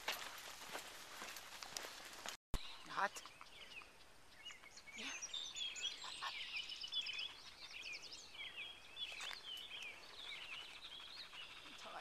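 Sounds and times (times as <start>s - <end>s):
songbirds chirping and whistling: 2.6s - 12.0s.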